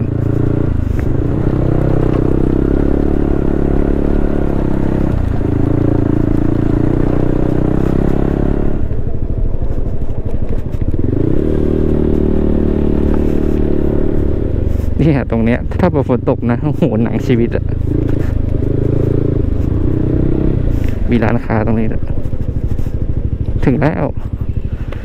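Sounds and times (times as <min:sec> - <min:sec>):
motorcycle engine running: 0:00.0 - 0:25.0
rattling and scraping: 0:09.5 - 0:15.9, 0:16.5 - 0:23.7.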